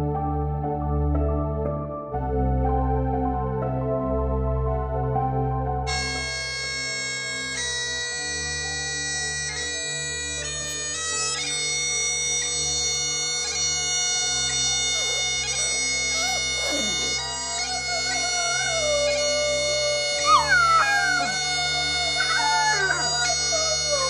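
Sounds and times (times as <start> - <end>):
bagpipes playing: 5.9 - 24.0
puppy howling: 14.5 - 24.0.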